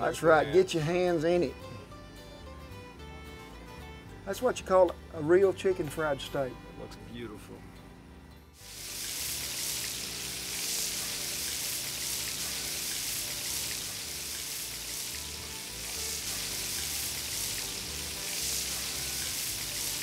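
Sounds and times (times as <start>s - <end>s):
background music: 0.0s - 20.0s
steaks sizzling in skillet: 8.6s - 20.0s.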